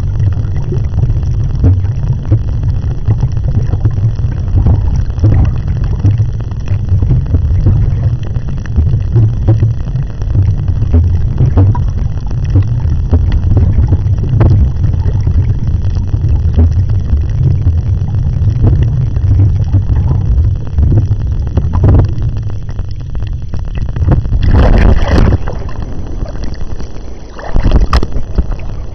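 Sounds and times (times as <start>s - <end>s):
muffled underwater rumble and sloshing: 0.0s - 28.9s
hissy water splash: 24.4s - 28.9s.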